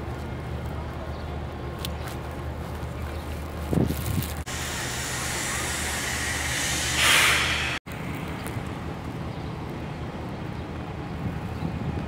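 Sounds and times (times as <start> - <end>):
outdoor wind: 0.0 - 12.0
wind on microphone: 3.6 - 7.8, 11.0 - 12.0.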